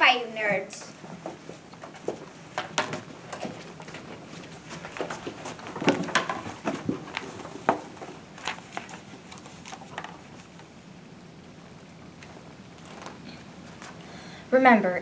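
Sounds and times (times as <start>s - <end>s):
books rustling: 0.9s - 10.8s, 11.6s - 14.2s.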